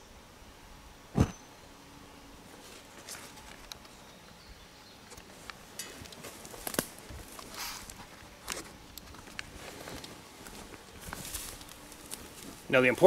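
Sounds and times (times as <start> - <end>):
crackles and sharp pops: 5.1 - 12.5
burning wax rushing: 5.3 - 13.0.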